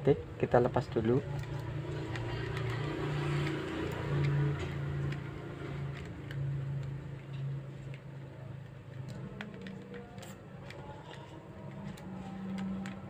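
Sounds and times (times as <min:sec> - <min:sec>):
screwdriver ticks and clicks: 0:01.3 - 0:07.2.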